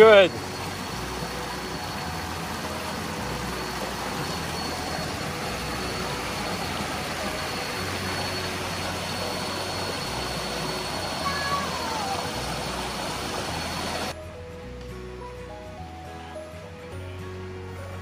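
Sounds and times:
water rushing over rocks: 0.0s - 14.1s.

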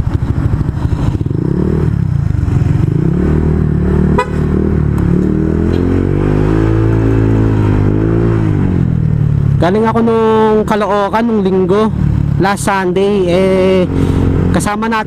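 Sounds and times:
scooter engine accelerating: 0.0s - 9.7s.

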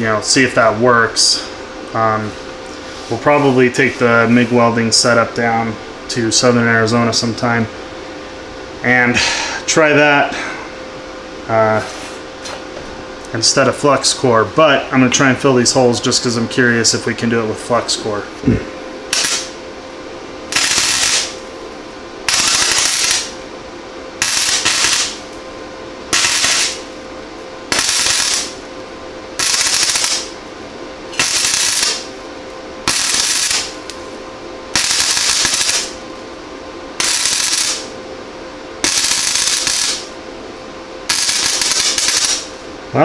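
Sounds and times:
steady hum: 0.0s - 43.0s
welder arcing on sheet steel: 19.1s - 19.6s, 20.5s - 21.5s, 22.2s - 23.4s, 24.2s - 25.4s, 26.1s - 27.0s, 27.6s - 28.7s, 29.4s - 30.4s, 31.1s - 32.2s, 32.8s - 34.1s, 34.7s - 36.0s, 37.0s - 38.0s, 38.8s - 40.2s, 41.0s - 42.6s.

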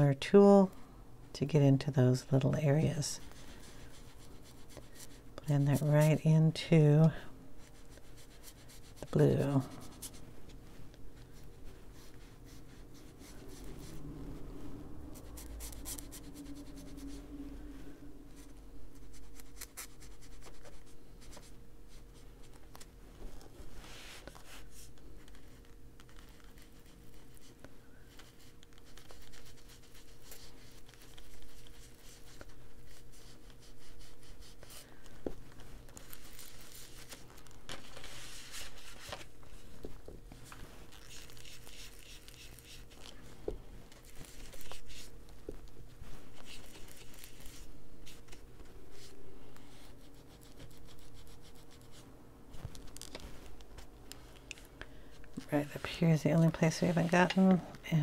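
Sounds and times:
foam tool scrubbing on paper: 40.3s - 43.3s.

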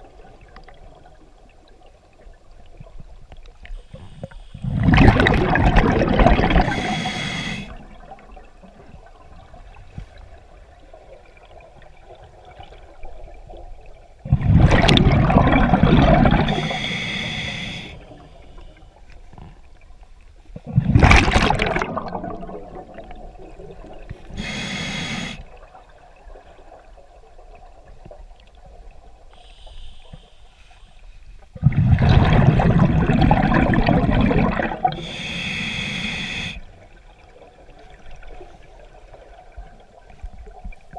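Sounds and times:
low water noise: 0.0s - 40.9s
diver exhaling bubbles: 4.6s - 8.0s, 14.3s - 17.0s, 20.6s - 25.4s, 31.6s - 36.5s
regulator hiss: 6.7s - 7.8s, 16.5s - 18.7s, 24.3s - 25.5s, 29.4s - 31.0s, 35.0s - 36.7s.

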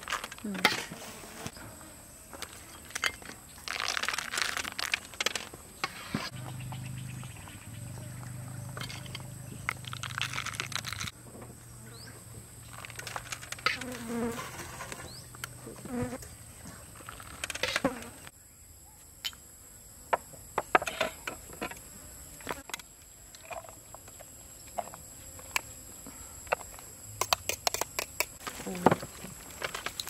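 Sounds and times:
high insect drone: 0.1s - 30.0s.

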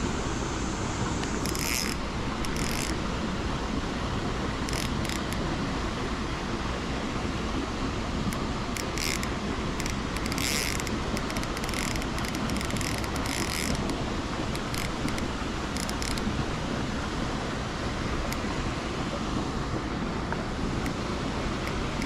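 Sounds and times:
fishing reel clicking: 1.2s - 3.0s, 4.6s - 5.4s, 8.7s - 16.3s, 21.6s - 22.0s.

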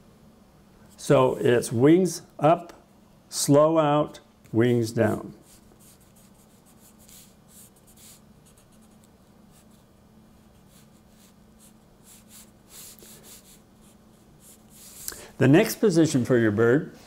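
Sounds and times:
faint low hum: 0.0s - 17.0s
pencil scratching on paper: 5.0s - 15.0s.

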